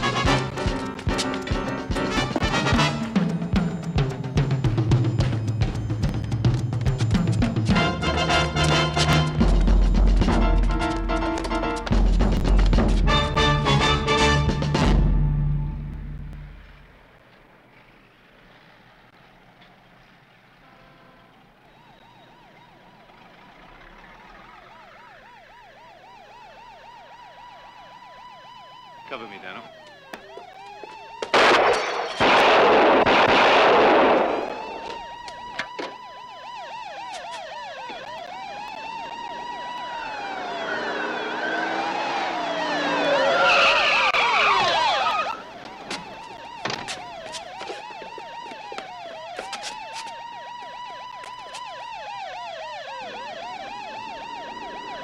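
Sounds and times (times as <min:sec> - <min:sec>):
police sirens wailing: 0:00.0 - 0:17.2, 0:21.3 - 0:55.0.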